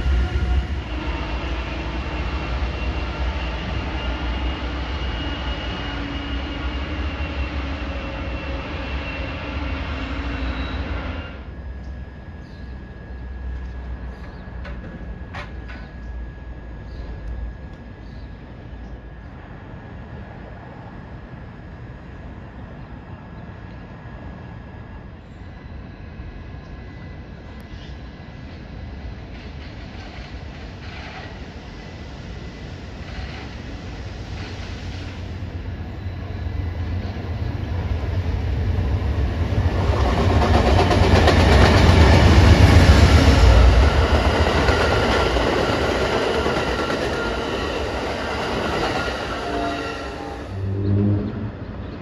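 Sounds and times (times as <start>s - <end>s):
diesel locomotive passing: 0.0s - 52.0s
train wheels clacking on rails: 13.6s - 16.2s, 29.2s - 31.6s, 32.9s - 35.4s, 38.9s - 49.8s.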